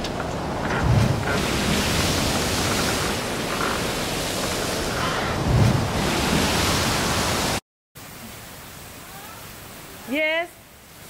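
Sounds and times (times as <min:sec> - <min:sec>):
wind buffeting microphone: 0:00.0 - 0:07.6
heavy rain pouring: 0:00.0 - 0:11.0.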